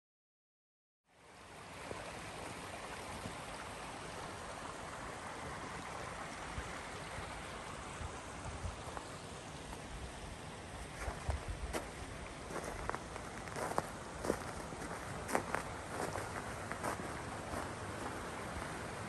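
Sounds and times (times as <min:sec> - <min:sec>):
waterfall rushing: 0:12.0 - 0:19.0.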